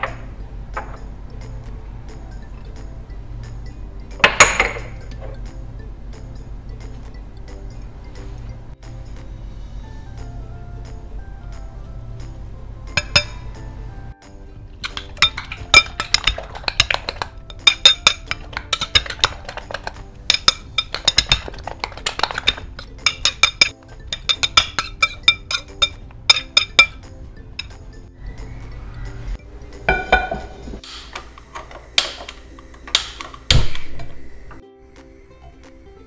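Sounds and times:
soft background music: 0.0s - 36.0s
metal spoon clinking on glass bowl: 13.0s - 13.5s, 14.8s - 27.0s.

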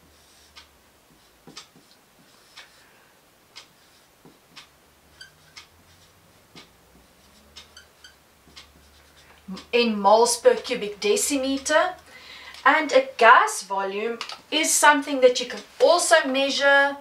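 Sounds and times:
marker squeaking on a whiteboard: 0.0s - 2.8s, 3.6s - 9.7s
clock ticking: 0.4s - 0.8s, 1.4s - 2.8s, 3.5s - 13.1s.

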